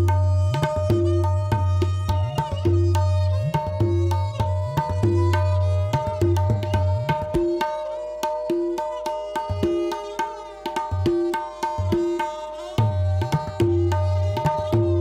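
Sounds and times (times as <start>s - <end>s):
crisp tabla strokes: 0.0s - 15.0s.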